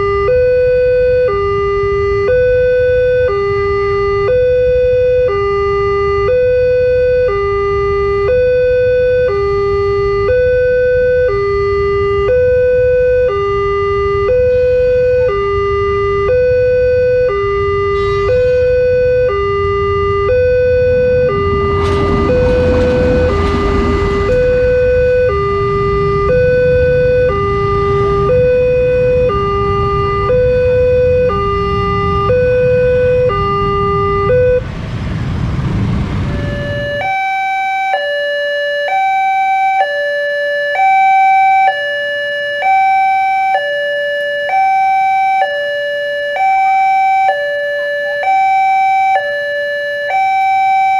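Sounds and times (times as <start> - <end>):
level crossing two-tone alarm: 0.0 - 34.6, 36.4 - 50.9
motorcycle and traffic noise: 13.6 - 37.2.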